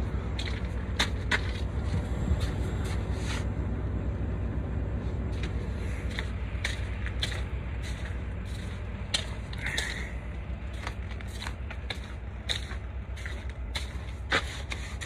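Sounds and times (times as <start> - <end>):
steady low rumble: 0.0 - 15.0
footsteps crunching on snow: 5.3 - 15.0.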